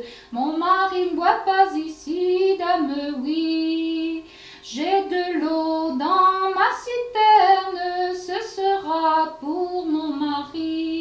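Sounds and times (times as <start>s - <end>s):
girl singing unaccompanied: 0.0s - 11.0s.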